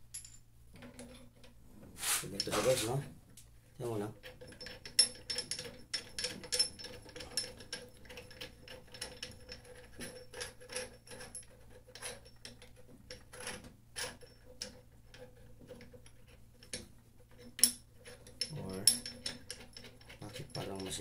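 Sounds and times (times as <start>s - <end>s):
metal clicks taps and scrapes: 4.2s - 21.0s.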